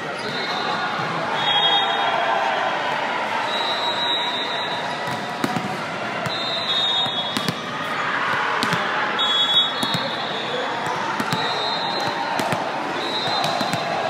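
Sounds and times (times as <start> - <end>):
murmur of spectators chatter: 0.0 - 14.0
ball bouncing on gym floor: 7.4 - 7.6, 8.6 - 8.9, 9.8 - 10.1, 10.8 - 12.7, 13.3 - 13.9.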